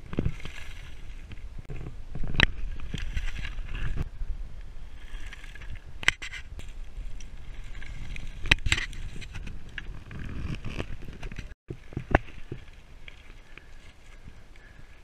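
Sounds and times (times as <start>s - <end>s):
bike knocking and rattling: 5.6s - 14.4s.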